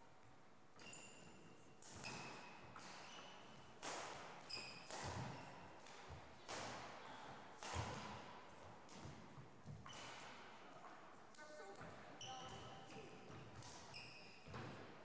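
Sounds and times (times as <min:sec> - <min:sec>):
racket hitting shuttlecock: 0:01.8 - 0:10.5, 0:13.2 - 0:15.0.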